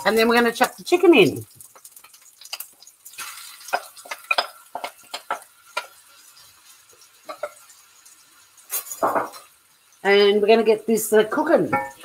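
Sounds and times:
chicken sizzling in hot oil: 0:00.0 - 0:12.0
clicks and knocks against pan: 0:09.0 - 0:09.4.

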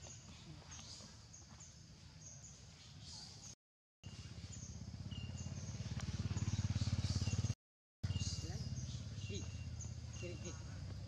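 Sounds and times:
pulsing engine hum: 0:04.1 - 0:11.0.

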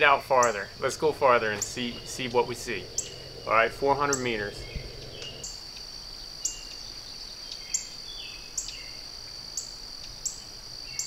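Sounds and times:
bird calls: 0:00.0 - 0:05.6
high-pitched insect chorus: 0:00.0 - 0:11.0.

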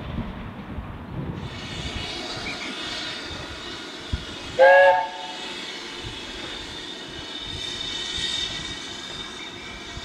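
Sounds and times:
steam locomotive hissing: 0:01.4 - 0:10.0
steam whistle blast: 0:04.6 - 0:05.4.

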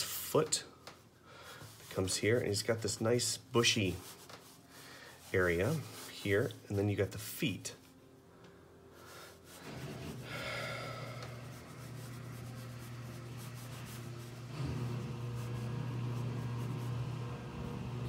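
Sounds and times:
pencil scratching on paper: 0:09.4 - 0:10.3, 0:11.1 - 0:17.6
laundry machine humming: 0:09.6 - 0:18.0.

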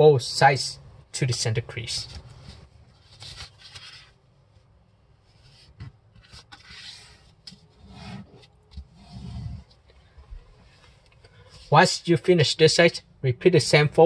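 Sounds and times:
paper rustling being folded: 0:01.8 - 0:08.9
paper crackles: 0:01.9 - 0:04.2.

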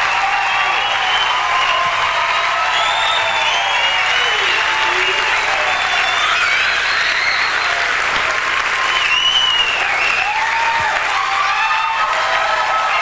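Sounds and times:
audience applauding: 0:00.0 - 0:13.0
high whistles: 0:00.4 - 0:02.0, 0:02.6 - 0:07.9, 0:08.8 - 0:10.4.

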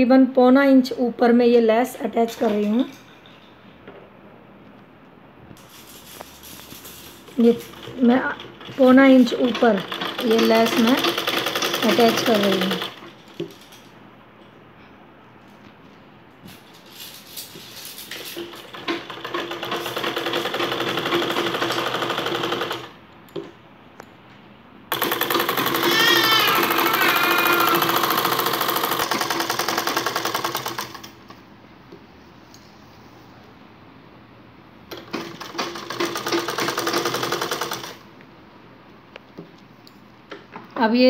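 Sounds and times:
sewing machine stitching: 0:06.7 - 0:13.2, 0:18.2 - 0:23.0, 0:24.9 - 0:31.2, 0:34.9 - 0:38.0.

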